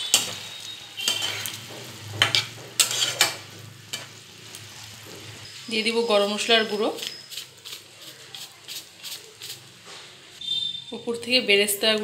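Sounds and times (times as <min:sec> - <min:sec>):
metal spatula scraping a frying pan: 0:00.0 - 0:05.6.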